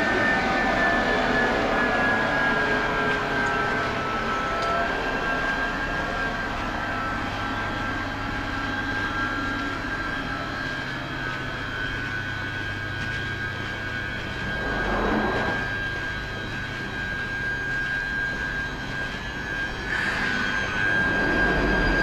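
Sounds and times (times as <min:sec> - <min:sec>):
low hum: 0:00.0 - 0:22.0
train electrical whine: 0:00.0 - 0:22.0
short rush: 0:14.4 - 0:15.7.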